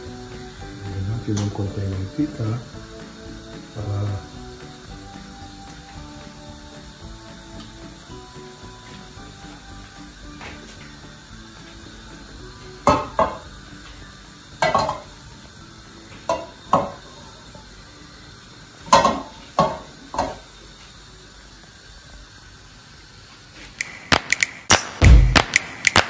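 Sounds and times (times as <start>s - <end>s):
metal pot scraping on grate: 14.6s - 15.2s
quick clicks: 23.8s - 26.0s.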